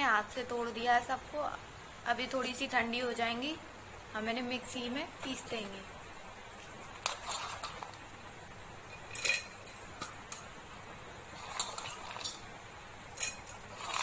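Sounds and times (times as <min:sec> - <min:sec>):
light clinks against metal: 0:08.8 - 0:10.6, 0:11.2 - 0:14.0.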